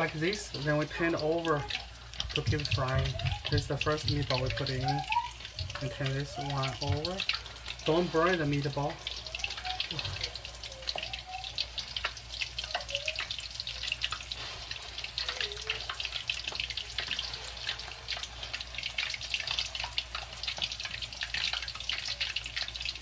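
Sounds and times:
meatballs sizzling in oil: 0:00.0 - 0:23.0.

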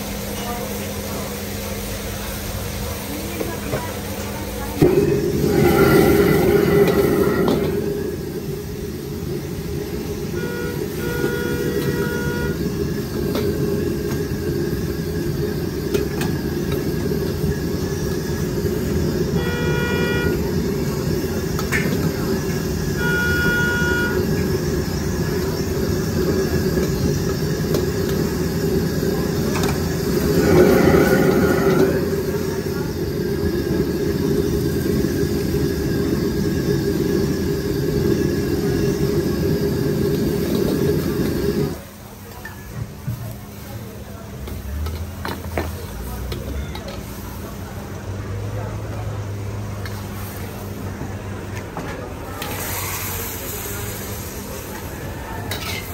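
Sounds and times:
gas wok burner roaring: 0:00.0 - 0:55.9
short tooting tones: 0:23.0 - 0:24.2.

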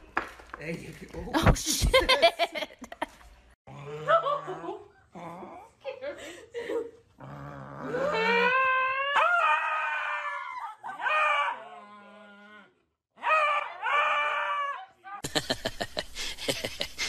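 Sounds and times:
dog howling: 0:07.7 - 0:12.5.

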